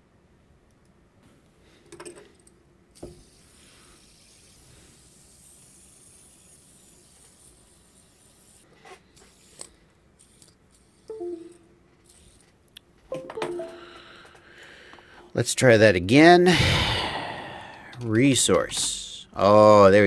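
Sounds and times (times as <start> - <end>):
fidget spinner whirring: 2.3 - 13.2.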